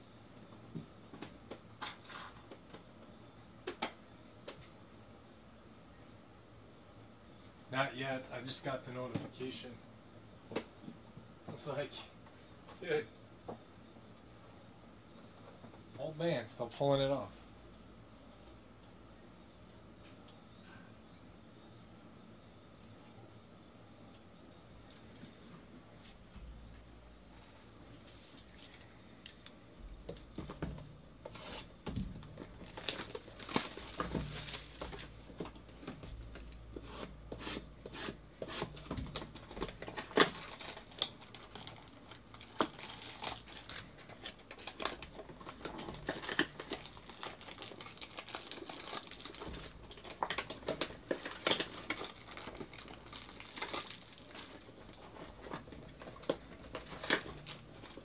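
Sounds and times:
plastic wrap tearing and crinkling: 31.3s - 35.5s, 38.5s - 58.0s.

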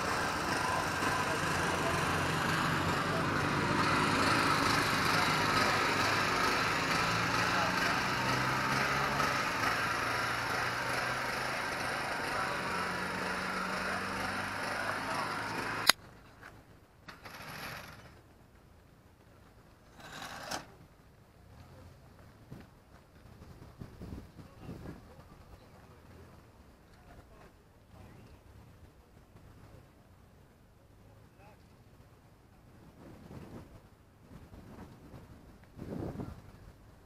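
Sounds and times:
engine running: 0.0s - 16.0s, 17.1s - 18.2s
wind gusts on microphone: 22.4s - 25.6s, 32.7s - 37.0s.

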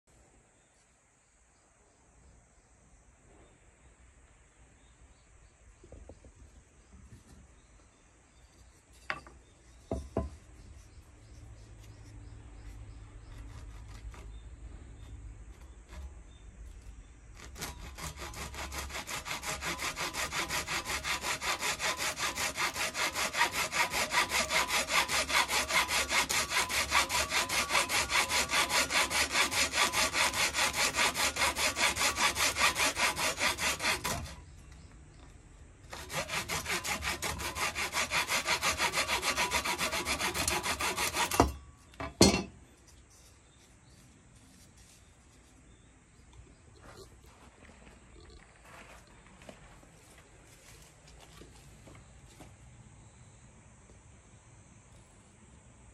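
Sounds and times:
hand saw cutting wood: 12.9s - 14.4s, 15.0s - 16.4s, 17.3s - 34.6s, 35.9s - 41.6s.

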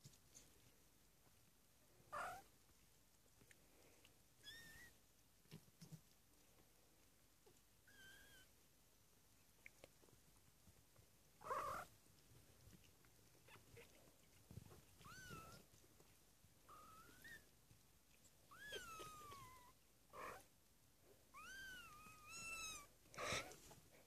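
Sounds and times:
kittens mewing: 11.4s - 11.9s, 18.5s - 20.5s, 21.4s - 23.6s.

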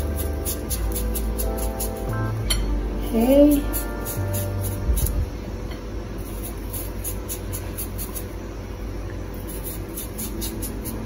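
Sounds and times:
steady low hum: 0.0s - 11.0s
knife scraping potato skin: 6.2s - 8.3s, 9.4s - 11.0s.

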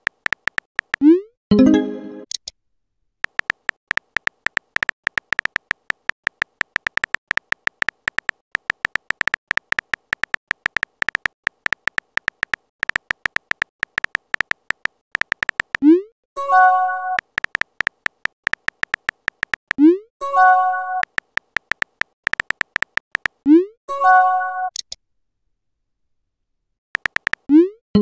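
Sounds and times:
phone keyboard typing clicks: 0.0s - 1.1s, 3.2s - 15.8s, 17.1s - 19.8s, 21.0s - 23.4s, 27.0s - 27.5s.

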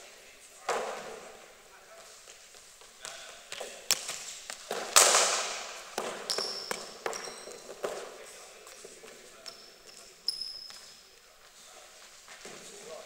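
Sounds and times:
ball bouncing on matting: 3.0s - 8.1s.

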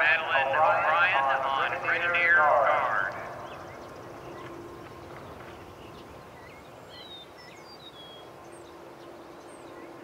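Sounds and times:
faint steady hum: 0.0s - 10.0s
open-air background hiss: 0.0s - 10.0s
birds chirping and whistling: 3.1s - 10.0s.

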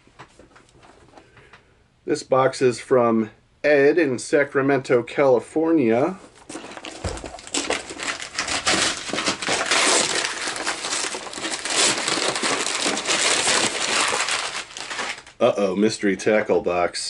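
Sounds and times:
wrapping paper tearing and crumpling: 6.3s - 15.4s.

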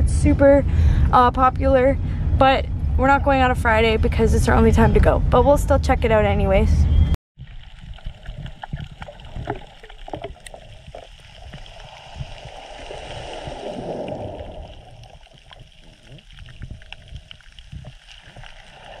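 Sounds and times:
muffled underwater water wash: 7.4s - 19.0s
small underwater clicks: 7.4s - 19.0s.

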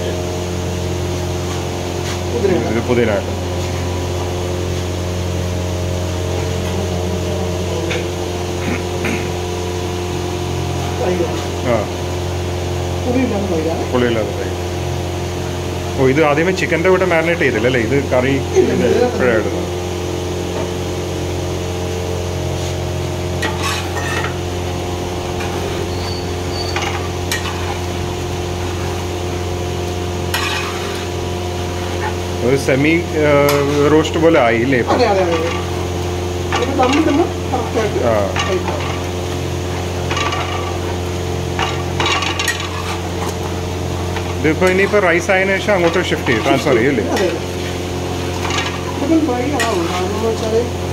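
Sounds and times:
steady machine hum: 0.0s - 50.9s
ladle scraping metal pot: 23.4s - 29.4s, 30.2s - 32.3s, 39.7s - 44.9s, 45.7s - 50.5s.

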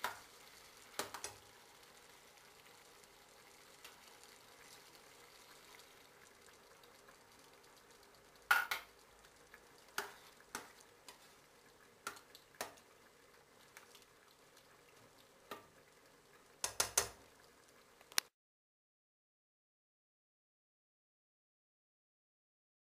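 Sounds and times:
faint steady hiss: 0.0s - 18.3s.

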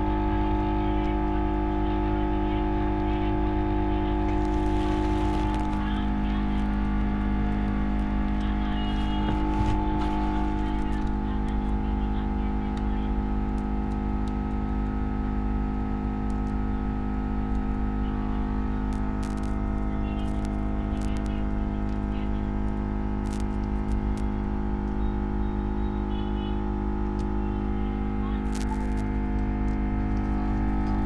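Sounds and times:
steady machine hum: 0.0s - 31.0s.

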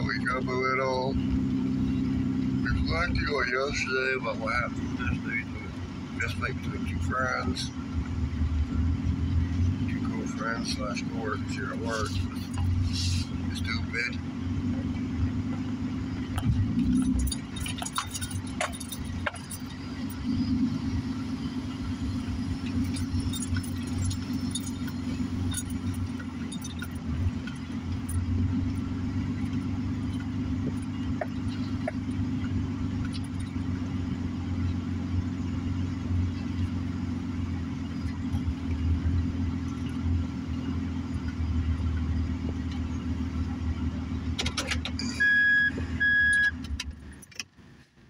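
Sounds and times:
engine and road hum: 0.0s - 48.0s
faint clicks and rattles: 16.3s - 20.2s.

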